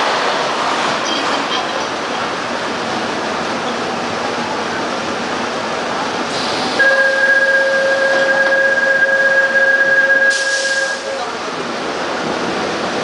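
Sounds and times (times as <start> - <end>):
air hiss burst: 6.3 - 6.8, 10.3 - 11.0
train hiss: 6.3 - 6.9, 10.3 - 11.2.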